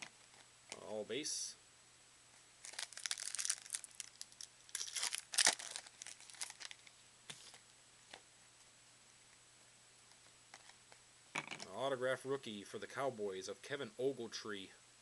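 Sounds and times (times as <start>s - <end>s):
card pack wrapper crinkling: 2.6s - 7.0s.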